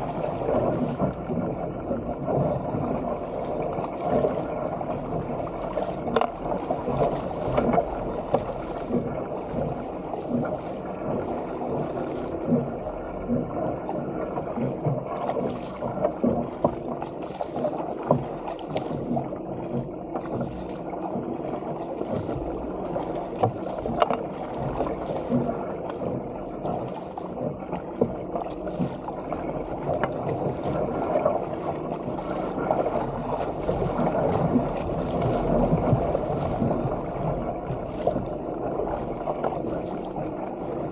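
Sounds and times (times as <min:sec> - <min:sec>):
paddle splashes: 0:00.0 - 0:40.9
water rushing along kayak hull: 0:00.0 - 0:40.9
waves slapping hull: 0:00.0 - 0:40.9.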